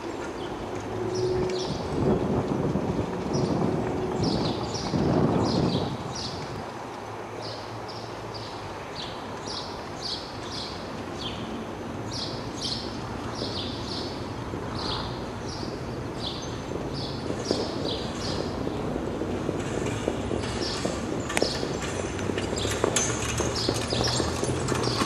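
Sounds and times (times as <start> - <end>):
birds chirping: 12.1 - 19.0, 19.8 - 25.0.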